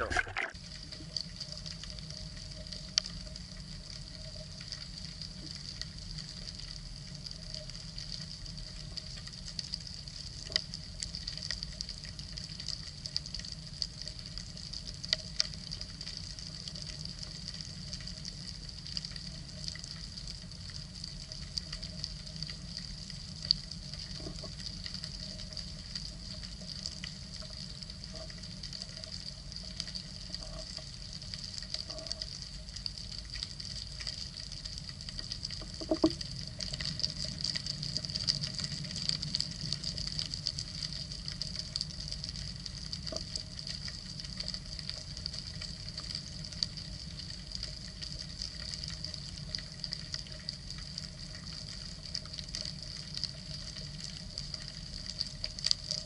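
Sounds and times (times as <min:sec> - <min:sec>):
sharp underwater clicks: 0:00.0 - 0:00.6, 0:35.5 - 0:36.3
low underwater rumble: 0:00.0 - 0:02.6, 0:21.0 - 0:45.9
dense underwater crackle: 0:00.0 - 0:56.0.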